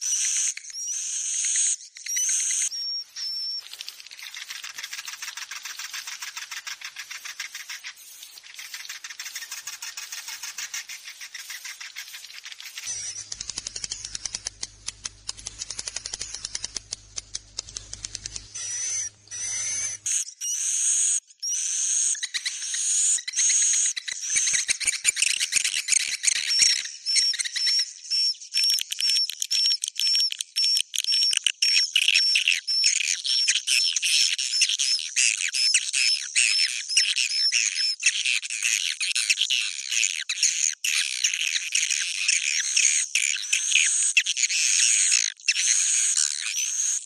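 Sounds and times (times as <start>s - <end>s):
repeated short bird notes: 0.0s - 33.4s
swiftlets twittering: 1.5s - 20.2s.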